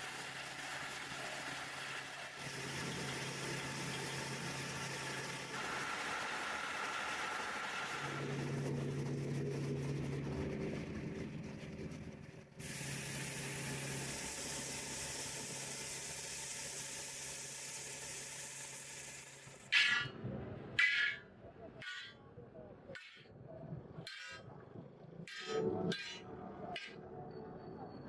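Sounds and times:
recycling machinery humming: 0.0 - 11.9.

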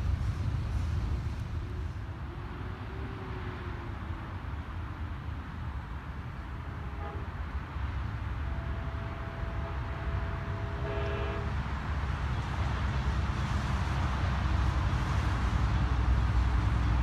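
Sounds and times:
train rumble: 0.0 - 17.0
train horn chord: 1.6 - 4.0, 6.8 - 7.4, 8.4 - 11.6.

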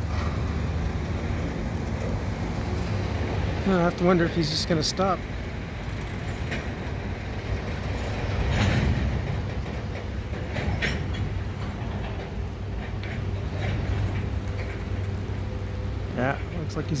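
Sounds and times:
freight train rumbling: 0.0 - 17.0
sharp metallic clanks: 7.5 - 14.8.

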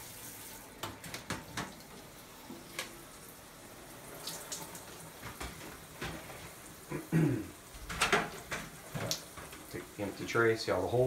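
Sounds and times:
shower head spraying water: 0.0 - 1.2.

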